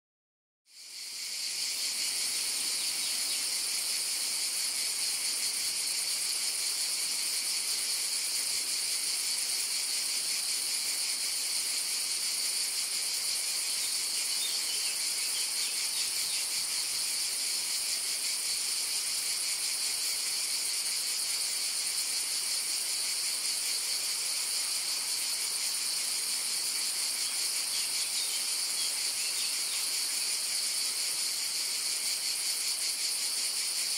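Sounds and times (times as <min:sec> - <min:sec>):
cicadas buzzing: 0:00.7 - 0:33.9.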